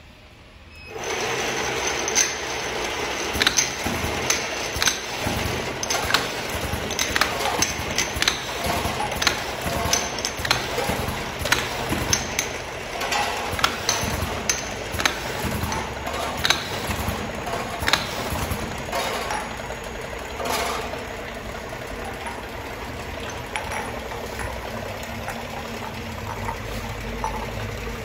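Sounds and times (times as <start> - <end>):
labeling machine hum: 0.9 - 28.0
glass jars clinking: 1.5 - 16.8, 22.0 - 28.0.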